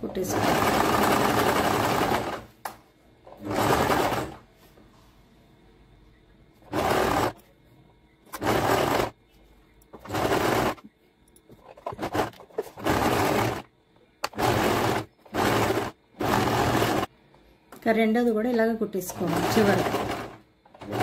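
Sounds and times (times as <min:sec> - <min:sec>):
sewing machine stitching: 0:00.0 - 0:02.5, 0:03.3 - 0:04.4, 0:06.7 - 0:07.4, 0:08.3 - 0:09.2, 0:10.0 - 0:10.9, 0:11.7 - 0:17.1, 0:19.1 - 0:21.0.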